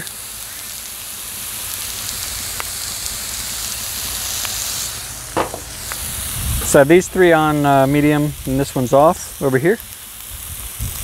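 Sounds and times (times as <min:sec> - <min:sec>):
meat sizzling on a griddle: 0:00.0 - 0:11.0
faint pops: 0:05.4 - 0:06.0.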